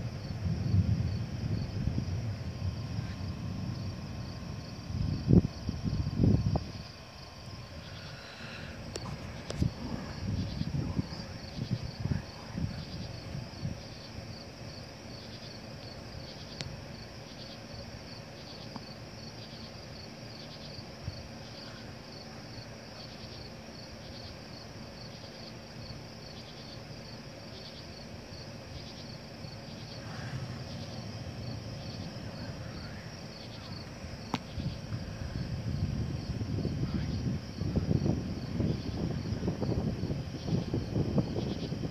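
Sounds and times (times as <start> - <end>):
low rumble: 0.0 - 14.4, 29.4 - 41.9
night insects chirping: 0.0 - 41.9.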